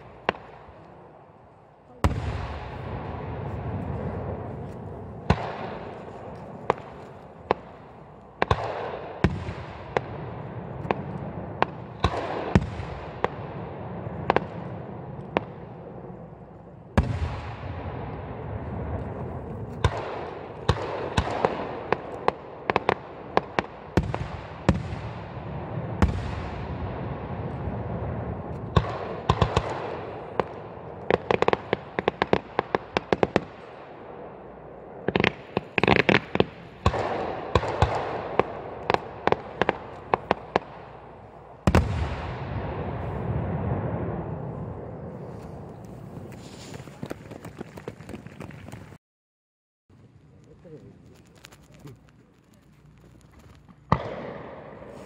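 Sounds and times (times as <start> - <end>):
crackling pops: 4.6 - 10.2, 19.0 - 25.0, 35.0 - 40.9, 49.9 - 55.0.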